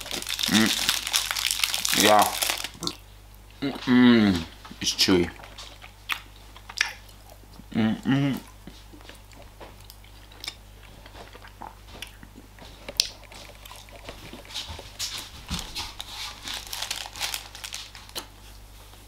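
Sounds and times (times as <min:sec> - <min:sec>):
man chewing: 0:05.4 - 0:19.0.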